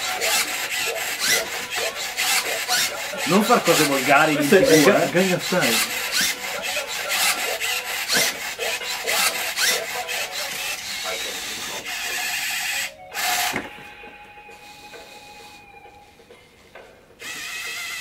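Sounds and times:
robot servo motors whirring: 0:00.0 - 0:03.0, 0:05.7 - 0:13.4, 0:17.2 - 0:18.0.

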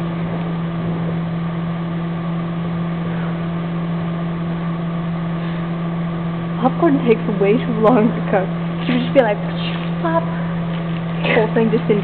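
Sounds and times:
microwave oven humming: 0:00.0 - 0:12.0.

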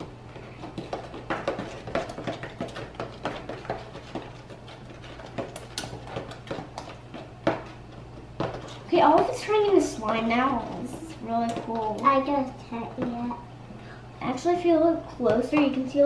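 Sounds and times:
metal spoons scraping slime: 0:08.4 - 0:12.2.

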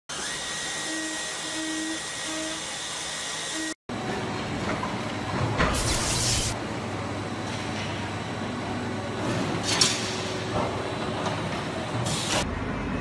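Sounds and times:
loud burst of hiss: 0:05.8 - 0:06.6.

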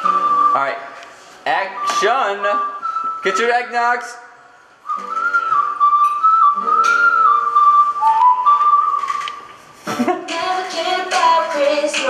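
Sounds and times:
whistled melody: 0:00.0 - 0:00.8, 0:01.7 - 0:03.7, 0:04.8 - 0:09.5.

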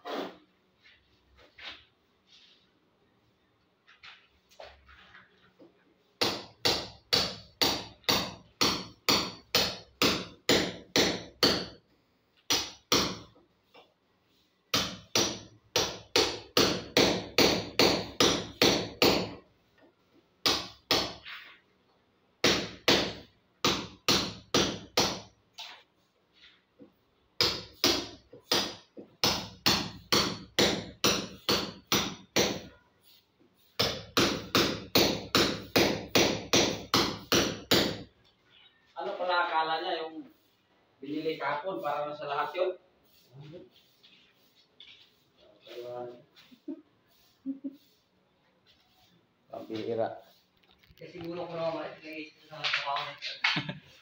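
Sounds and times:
hammer striking chisel into wall: 0:06.2 - 0:11.8, 0:12.5 - 0:13.4, 0:14.7 - 0:19.4, 0:20.4 - 0:21.2, 0:22.4 - 0:25.4, 0:27.4 - 0:32.8, 0:33.8 - 0:38.1.

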